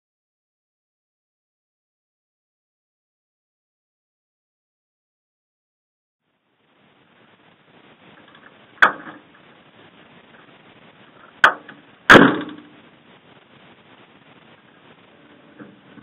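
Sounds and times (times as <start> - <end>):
faint steady hiss: 6.2 - 16.0
sharp knocks: 11.4 - 12.7.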